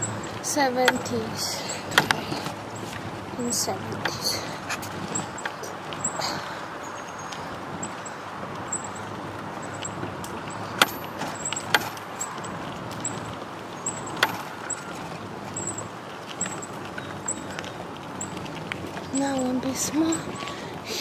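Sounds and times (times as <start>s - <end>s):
bicycle tyres rolling: 0.0s - 21.0s
sharp knocks: 10.8s - 12.1s, 13.9s - 14.6s.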